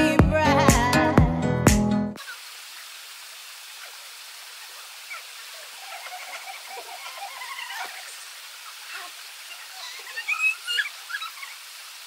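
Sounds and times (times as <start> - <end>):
running water hissing: 2.2 - 12.0.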